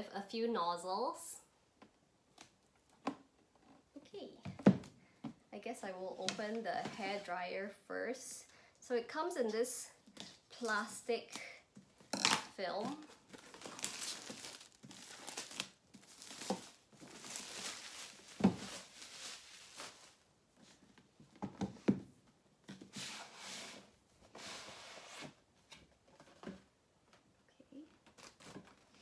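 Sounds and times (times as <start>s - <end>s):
plastic film tearing and crinkling: 12.2s - 20.2s.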